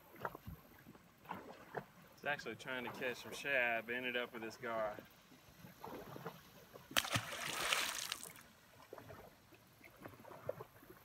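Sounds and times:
fish splashing into water: 0:06.9 - 0:08.5.

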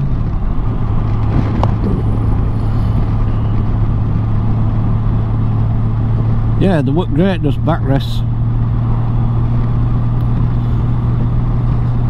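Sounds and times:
motorcycle engine droning: 0:00.0 - 0:12.0
wind and road rush: 0:00.0 - 0:12.0.

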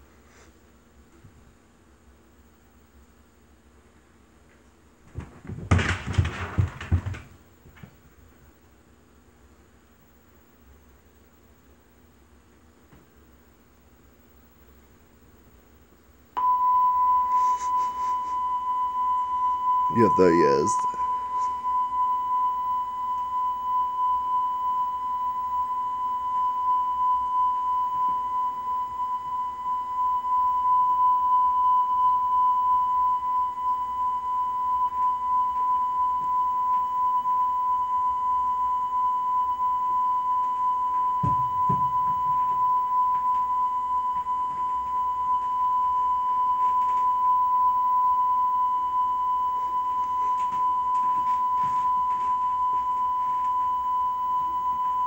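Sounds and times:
high-pitched beep tone: 0:16.4 - 0:55.0.

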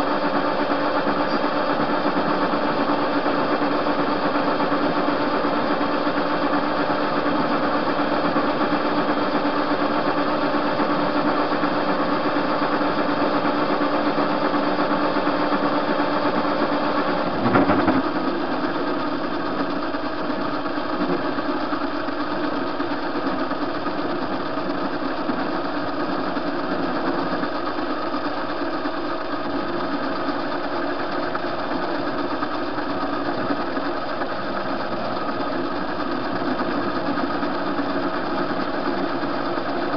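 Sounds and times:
lathe clatter: 0:00.0 - 0:39.9
metal lathe whirring: 0:00.0 - 0:39.9.

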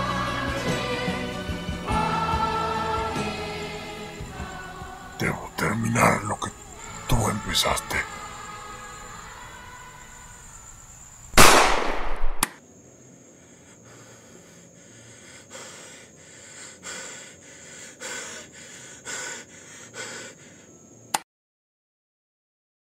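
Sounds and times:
heavy ragged breathing: 0:00.0 - 0:10.4, 0:13.2 - 0:20.9
steady high hiss: 0:00.0 - 0:21.1
loud gunshot: 0:11.4 - 0:12.5.

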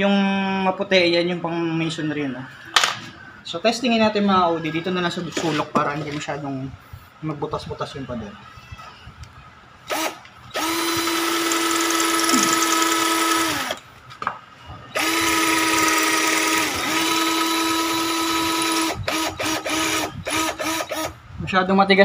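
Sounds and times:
cordless drill on concrete: 0:09.9 - 0:13.8, 0:15.0 - 0:21.1
drill trigger blips: 0:09.9 - 0:13.8, 0:15.0 - 0:21.2.

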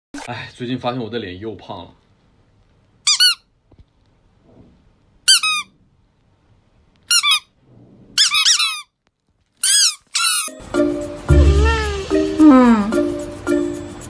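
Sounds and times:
high-pitched squeaking: 0:08.2 - 0:08.9, 0:09.6 - 0:10.6, 0:11.3 - 0:13.2.

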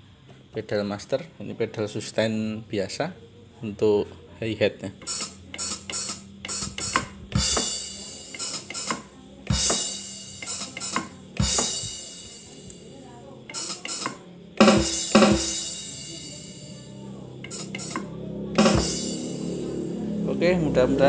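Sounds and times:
hi-hat hits: 0:05.0 - 0:12.9, 0:13.5 - 0:16.8, 0:17.4 - 0:19.9
deep drum hits: 0:14.6 - 0:15.7, 0:18.6 - 0:19.5.

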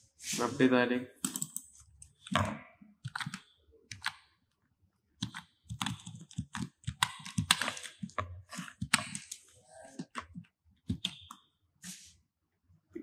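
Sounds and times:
computer keyboard typing: 0:01.2 - 0:04.3, 0:05.2 - 0:11.5.

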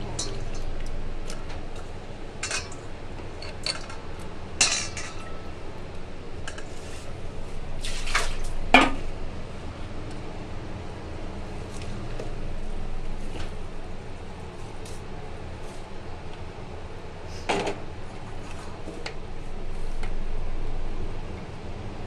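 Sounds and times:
metal cookware clinking: 0:00.0 - 0:00.8, 0:02.4 - 0:02.8, 0:04.6 - 0:05.5
low steady hum: 0:00.0 - 0:22.0.

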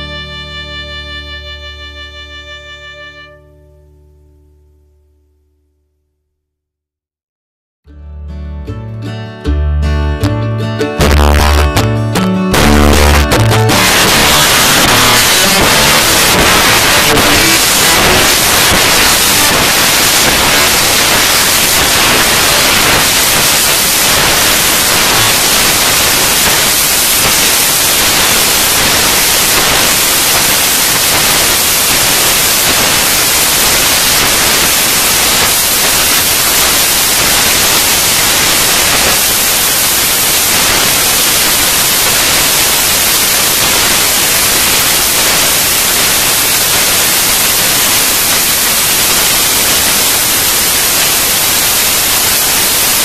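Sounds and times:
static hiss: 0:11.0 - 0:11.9, 0:12.5 - 0:53.0.

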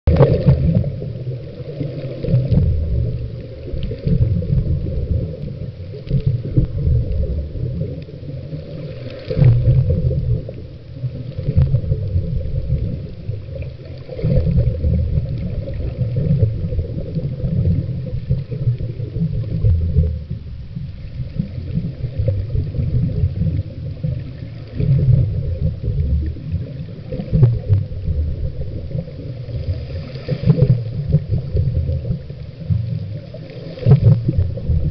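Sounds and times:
muffled underwater rumble: 0:00.0 - 0:34.9
faint clicks: 0:03.4 - 0:20.1.

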